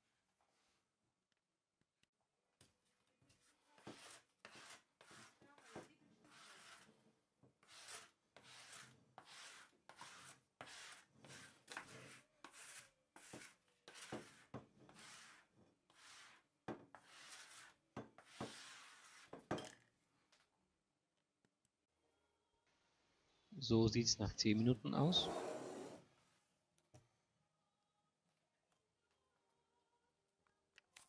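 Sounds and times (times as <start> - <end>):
sponge scrubbing worktop: 3.4 - 6.9, 7.6 - 19.4.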